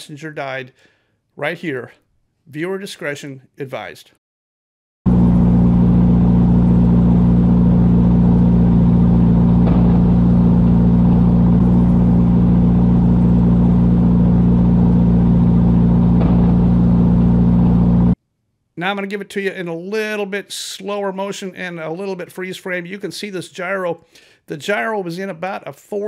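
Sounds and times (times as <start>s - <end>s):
low engine drone: 5.1s - 18.2s.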